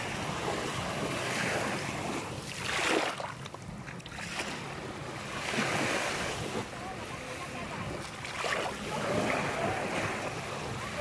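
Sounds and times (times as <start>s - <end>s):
small waves washing up a beach: 0.0s - 11.0s.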